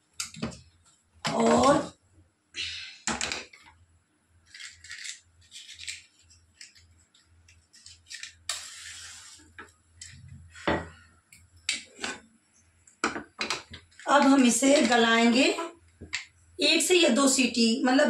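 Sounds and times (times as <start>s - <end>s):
gas burner hiss: 8.5s - 9.6s.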